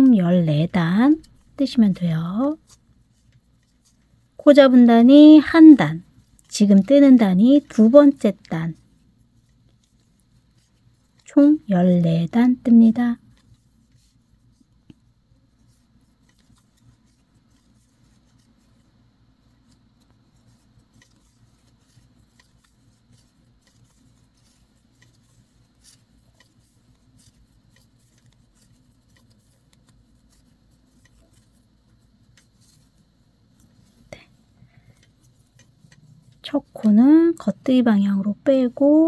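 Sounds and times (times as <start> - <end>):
low room hum: 0.0 - 39.0
knitting needles clicking: 19.4 - 37.7.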